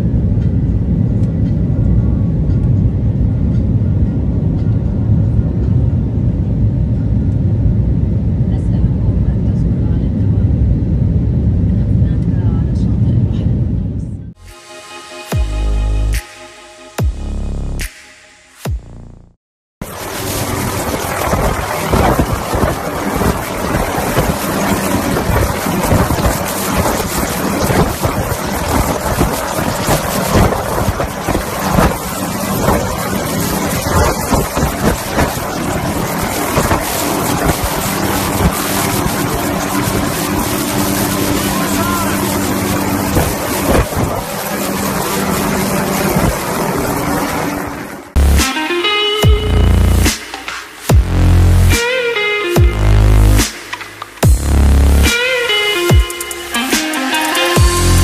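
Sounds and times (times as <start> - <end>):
electronic dance music: 14.4 - 20.1, 36.1 - 46.6, 48.1 - 58.0
helicopter hovering: 19.8 - 50.2
wind buffeting microphone: 20.0 - 48.2.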